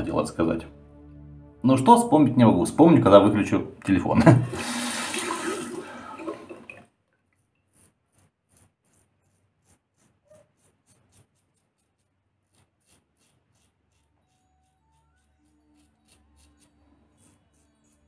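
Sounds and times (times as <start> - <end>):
running water: 4.4 - 6.9
razor scraping stubble: 7.2 - 18.0.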